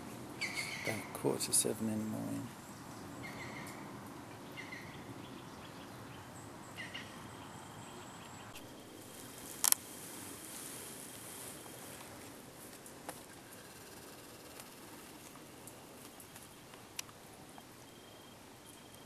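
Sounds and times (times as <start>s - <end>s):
low hiss: 0.0s - 19.0s
bird chirps: 0.4s - 1.2s, 2.2s - 3.8s, 4.4s - 9.1s.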